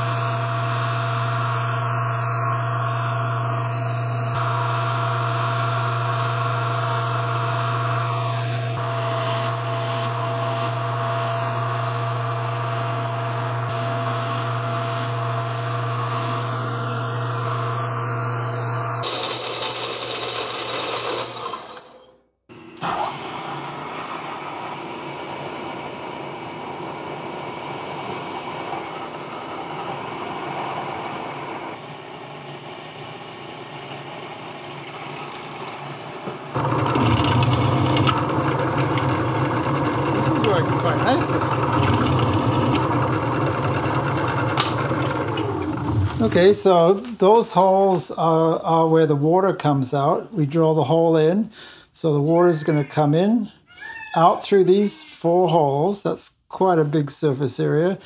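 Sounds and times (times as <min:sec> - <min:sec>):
milling spindle high whine: 0:00.0 - 0:19.8, 0:23.6 - 0:48.6
loud low machine hum: 0:00.0 - 0:20.0, 0:21.4 - 0:49.2
lathe motor humming: 0:22.8 - 0:47.1.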